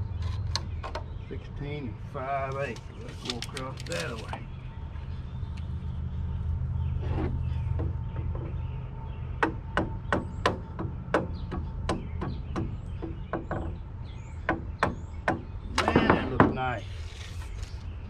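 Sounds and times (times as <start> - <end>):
low steady rumble: 0.0 - 18.0.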